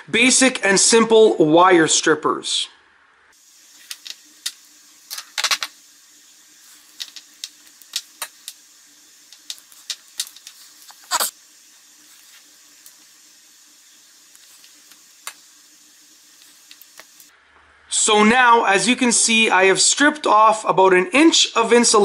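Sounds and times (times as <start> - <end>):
faint steady hum: 0.0 - 20.9
wire strippers clicking: 9.3 - 11.3.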